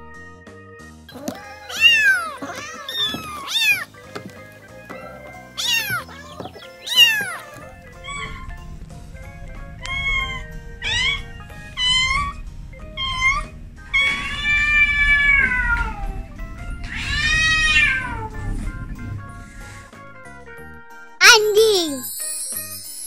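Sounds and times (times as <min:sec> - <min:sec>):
cats meowing: 0:01.1 - 0:18.5.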